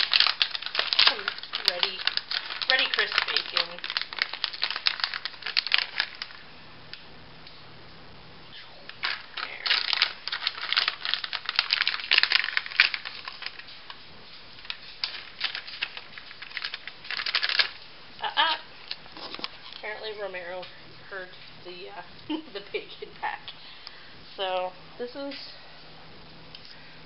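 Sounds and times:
plastic packet crinkling: 0.0s - 6.5s, 8.9s - 21.5s.

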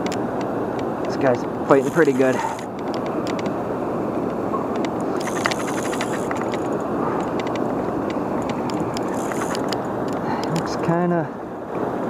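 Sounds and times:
fishing reel clicking: 1.7s - 3.4s, 5.0s - 7.6s, 8.4s - 9.9s.

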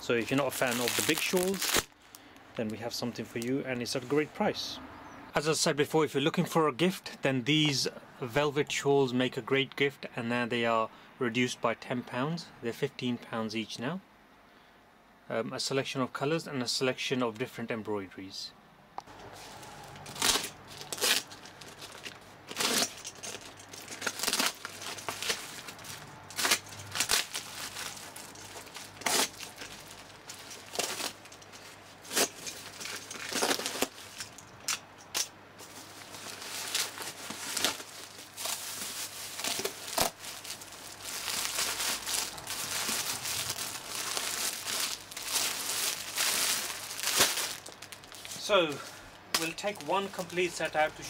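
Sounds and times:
plastic and cardboard crinkling: 0.0s - 2.1s, 19.1s - 34.8s, 35.6s - 51.0s
packing tape ripping: 0.2s - 2.0s, 19.6s - 48.4s.

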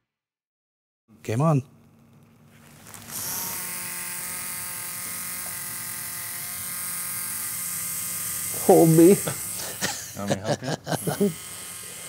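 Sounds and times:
tattoo machine buzzing: 2.8s - 12.0s.

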